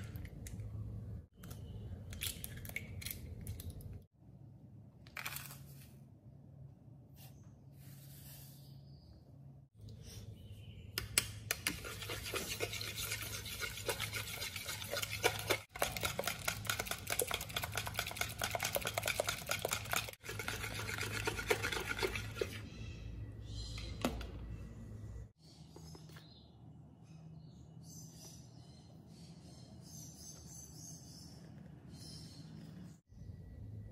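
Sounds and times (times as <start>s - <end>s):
whisk beating in a mixing bowl: 11.6s - 22.6s.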